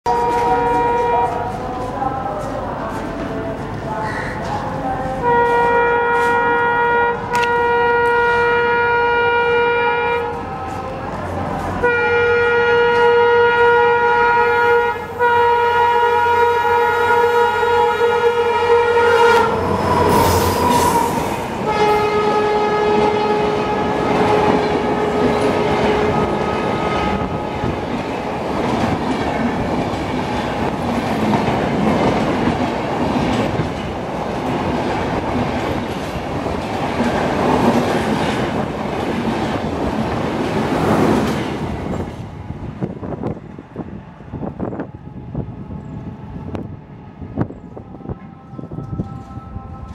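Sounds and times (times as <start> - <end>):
locomotive horn: 0.1 - 1.8, 5.1 - 27.5
train passing with rush: 0.1 - 49.9.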